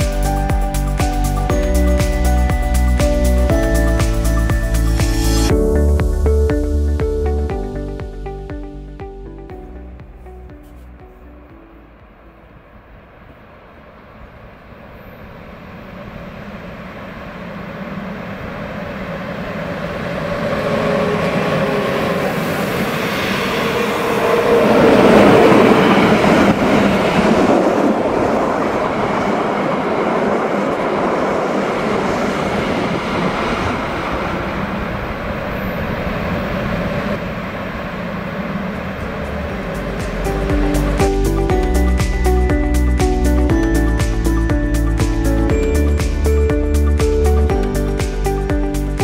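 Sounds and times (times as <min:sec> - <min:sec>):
electric freight train passing: 0:00.0 - 0:49.0
wagons rumbling over track: 0:14.4 - 0:48.0.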